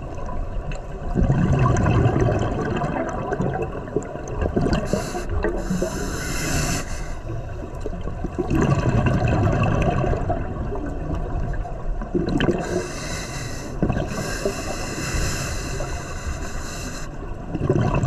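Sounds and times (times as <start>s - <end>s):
bubbling exhale underwater: 1.1s - 6.8s, 8.2s - 13.2s, 13.8s - 14.7s, 17.5s - 18.0s
regulator hissing inhale: 4.8s - 7.3s, 12.6s - 17.2s.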